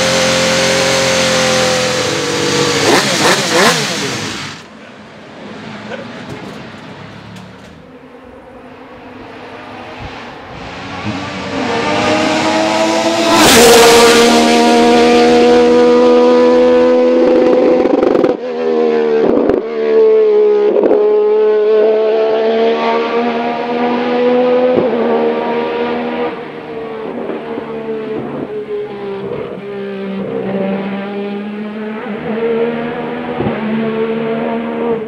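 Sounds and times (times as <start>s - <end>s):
racing engine at high revs: 0.0s - 35.0s
gear change crack: 6.1s - 7.9s.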